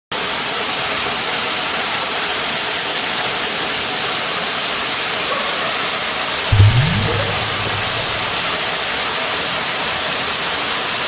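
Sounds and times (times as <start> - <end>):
waterfall rushing splash: 6.5 - 8.7.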